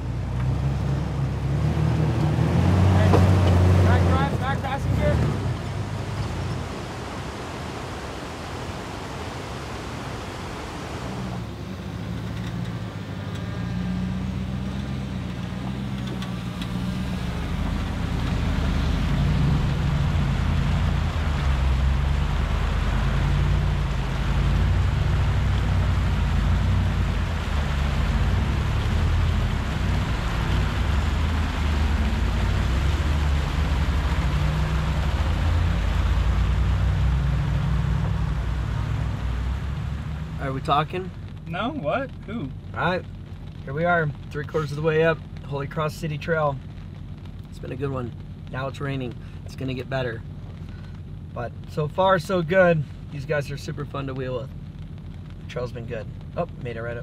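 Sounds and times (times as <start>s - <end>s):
off-road vehicle engine: 0.0s - 57.0s.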